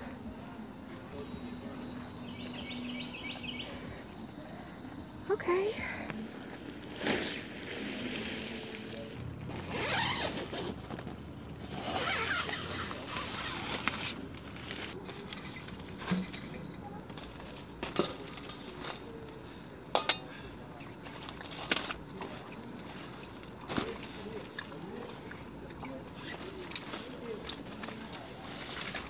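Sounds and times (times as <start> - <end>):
high insect drone: 0.0 - 11.1
nylon tent rustling: 6.2 - 19.4, 21.0 - 25.3, 26.0 - 29.0.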